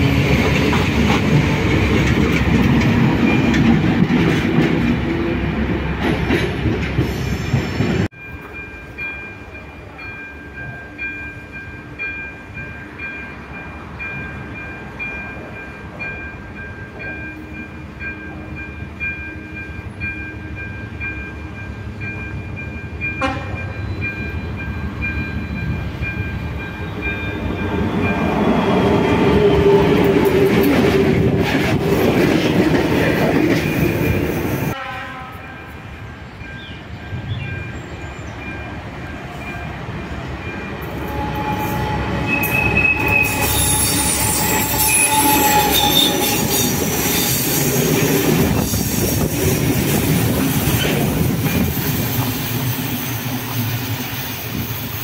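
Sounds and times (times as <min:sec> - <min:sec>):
wheels clacking over rail joints: 0:00.0 - 0:08.6
diesel locomotive running: 0:00.0 - 0:55.0
train wheels squealing: 0:07.0 - 0:08.4, 0:23.6 - 0:30.3, 0:40.4 - 0:49.7, 0:50.3 - 0:55.0.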